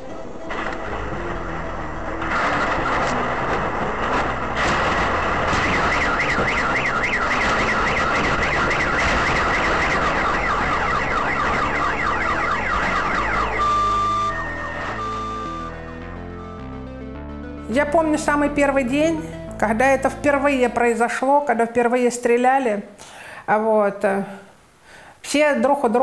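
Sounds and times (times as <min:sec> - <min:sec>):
sharp bangs of shelling: 0:04.1 - 0:13.4
car alarm warbling: 0:04.6 - 0:17.0.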